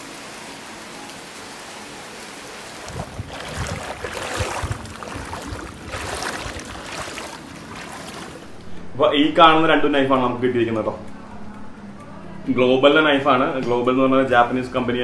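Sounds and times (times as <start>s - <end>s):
rain hiss: 0.0s - 3.2s
footsteps wading through water: 2.7s - 8.6s.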